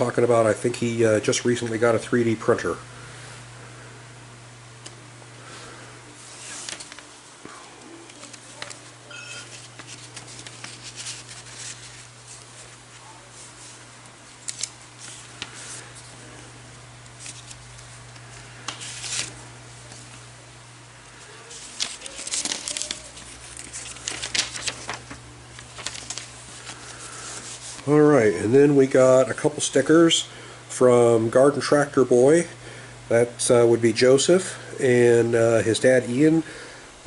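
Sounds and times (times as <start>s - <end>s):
steady low hum: 0.0s - 37.0s
paper rustling and crinkling: 6.2s - 7.2s, 8.0s - 16.4s, 17.1s - 20.2s, 21.2s - 28.0s.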